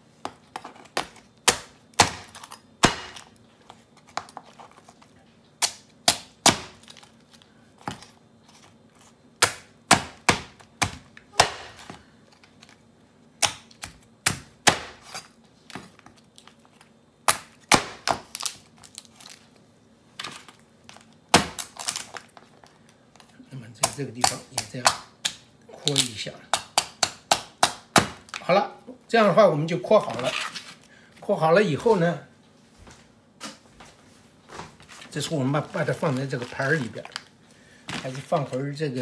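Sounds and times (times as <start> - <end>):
knife cracking crab shells: 21.4 - 22.3, 23.8 - 28.4.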